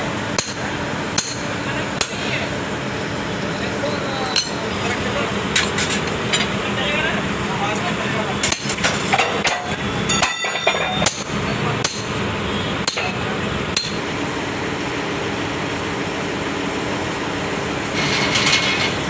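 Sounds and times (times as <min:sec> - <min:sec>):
steady machinery noise: 0:00.0 - 0:19.0
hammer striking steel: 0:00.4 - 0:02.2, 0:04.3 - 0:04.7, 0:08.4 - 0:12.2, 0:12.8 - 0:13.2, 0:13.8 - 0:14.0.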